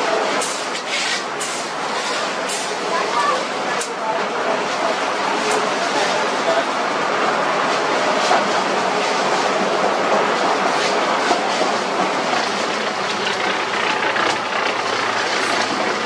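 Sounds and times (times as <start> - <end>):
machinery rattling clatter: 11.3 - 16.0.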